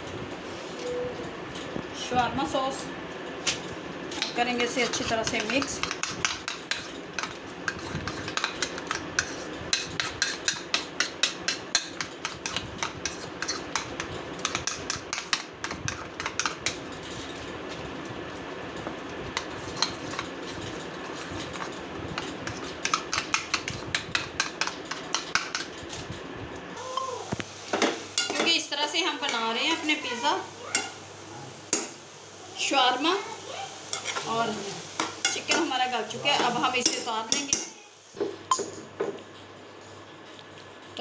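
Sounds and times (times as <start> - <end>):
metal spoon scraping a dish: 4.1 - 17.4.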